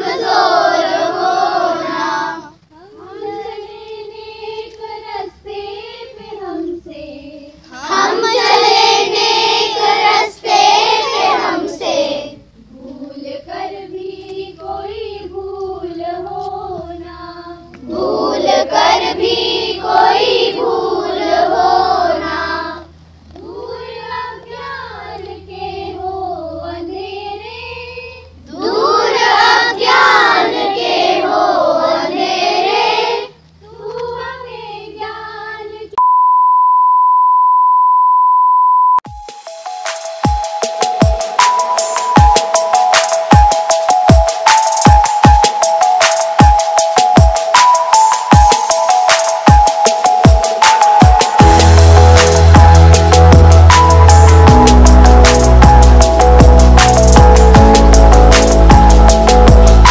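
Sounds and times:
children singing in unison: 0.0s - 36.0s.

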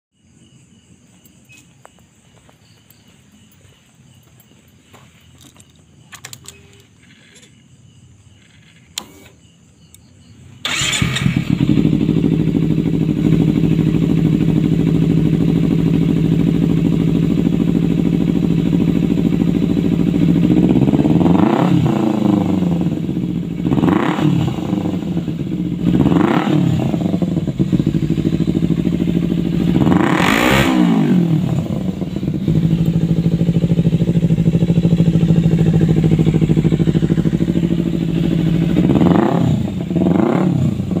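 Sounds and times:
motorcycle engine idling and revving: 0.1s - 41.0s
click: 5.4s - 7.5s, 8.4s - 10.1s.

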